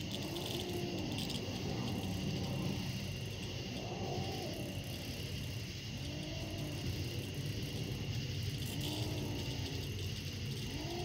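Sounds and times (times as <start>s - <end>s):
kitten growling and yowling: 0.0s - 2.2s, 3.7s - 5.2s, 10.6s - 11.0s
high insect buzz: 0.0s - 11.0s.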